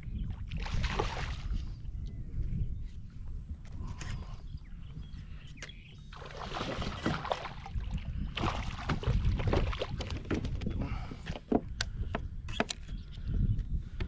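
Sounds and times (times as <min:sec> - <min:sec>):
fish splashing at the surface: 0:06.2 - 0:07.8.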